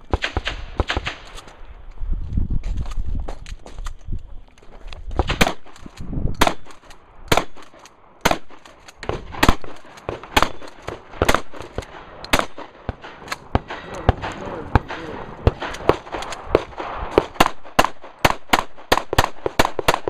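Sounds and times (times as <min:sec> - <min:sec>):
loud gunshots: 0:07.3 - 0:20.0.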